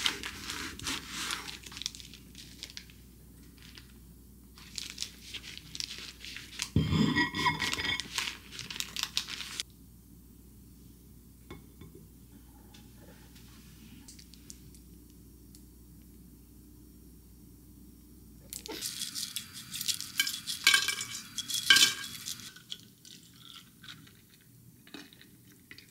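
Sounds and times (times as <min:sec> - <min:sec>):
baking paper crinkling: 0:00.0 - 0:09.6.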